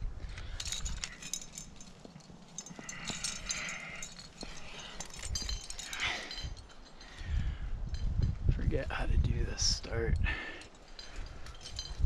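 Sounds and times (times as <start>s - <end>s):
carabiners clinking: 0.2s - 8.4s, 9.8s - 12.0s
rustling: 0.3s - 7.2s.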